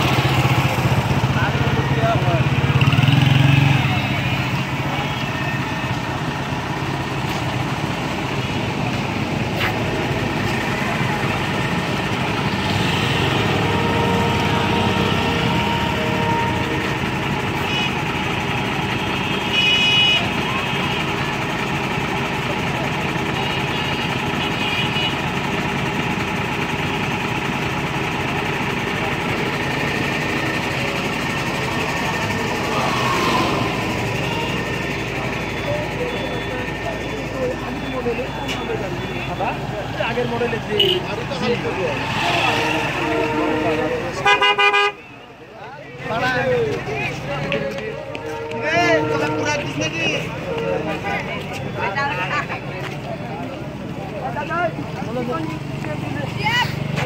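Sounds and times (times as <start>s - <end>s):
cars and motorcycles passing: 0.0s - 19.5s, 24.1s - 57.0s
diesel engine idling: 0.0s - 57.0s.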